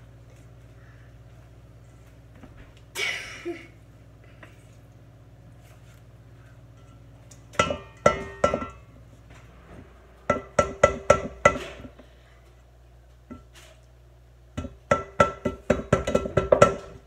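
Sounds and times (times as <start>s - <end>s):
spatula tapping metal bowl: 6.8s - 8.9s, 10.3s - 11.7s, 14.6s - 17.0s.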